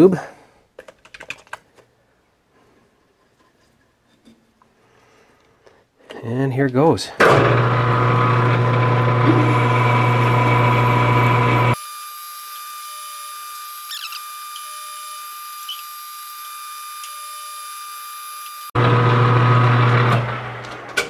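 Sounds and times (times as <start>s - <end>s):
metal lathe humming and whining: 7.5s - 11.8s.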